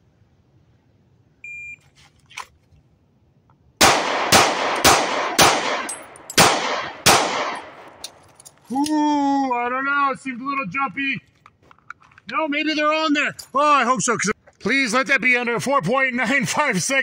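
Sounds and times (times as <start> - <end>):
pistol shots: 3.8 - 8.2.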